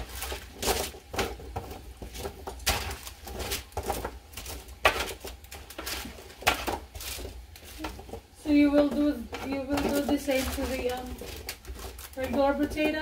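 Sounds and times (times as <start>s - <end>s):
metal spatula scraping baking pan: 2.0s - 13.0s.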